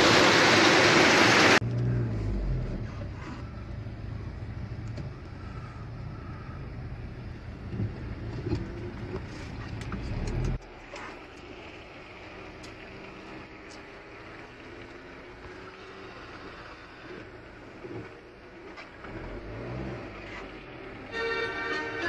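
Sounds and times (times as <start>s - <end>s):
car cabin rumble: 1.6s - 11.2s.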